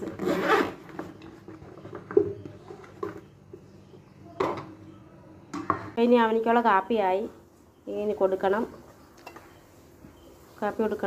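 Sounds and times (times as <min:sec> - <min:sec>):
plastic containers knocking and clicking: 0:00.9 - 0:03.7.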